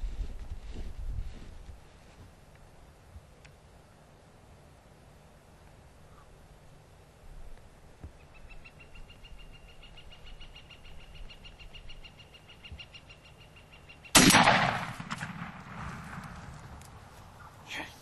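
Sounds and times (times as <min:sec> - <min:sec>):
shotgun blast: 0:14.2 - 0:16.4.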